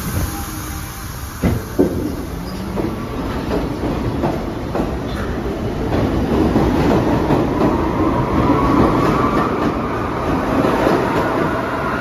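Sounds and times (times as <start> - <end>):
train rumble: 0.0 - 12.0
train wheels clacking on rails: 1.4 - 11.6.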